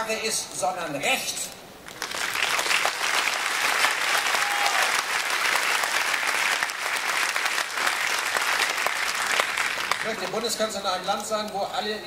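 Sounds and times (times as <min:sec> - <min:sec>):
large audience applauding: 0:01.9 - 0:10.7.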